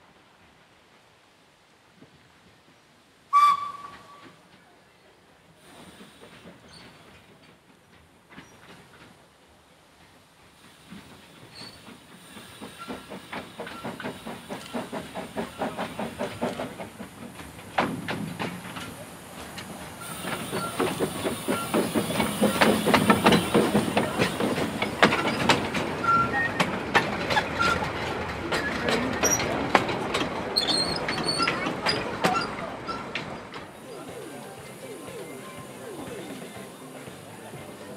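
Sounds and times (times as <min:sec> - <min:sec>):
steam locomotive exhaust beats: 0:03.3 - 0:04.6, 0:10.0 - 0:37.9
train wheels clicking on rail joints: 0:03.4 - 0:04.7, 0:05.6 - 0:37.9
steam hissing: 0:05.5 - 0:07.4, 0:10.4 - 0:37.9.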